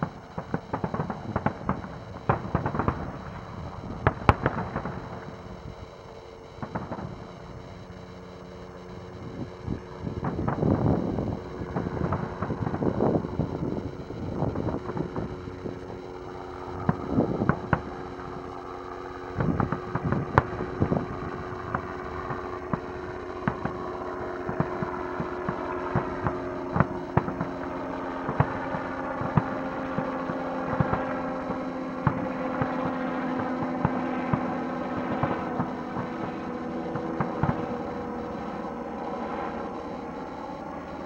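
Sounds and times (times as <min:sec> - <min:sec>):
fireworks bursting: 0:00.0 - 0:05.9, 0:06.5 - 0:07.5
steady low hum: 0:00.0 - 0:41.0.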